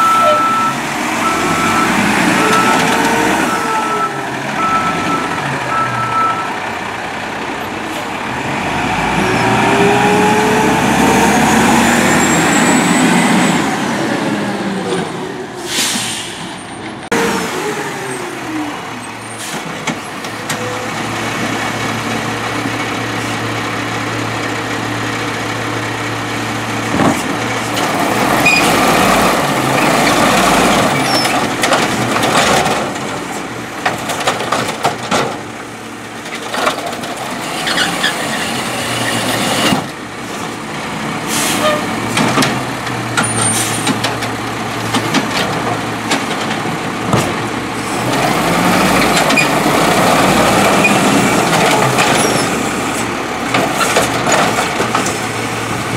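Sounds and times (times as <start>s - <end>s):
diesel engine running: 0.0s - 55.9s
cart clanking and banging: 26.8s - 55.9s.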